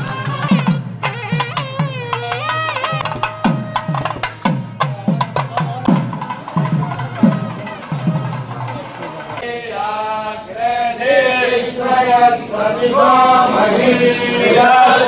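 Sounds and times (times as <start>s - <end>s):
drum strokes: 0.0s - 9.4s.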